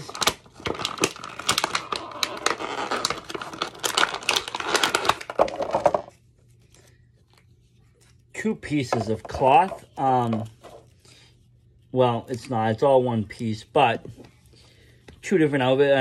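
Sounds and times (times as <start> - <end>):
plastic bag crinkling and tearing: 0.0 - 7.4.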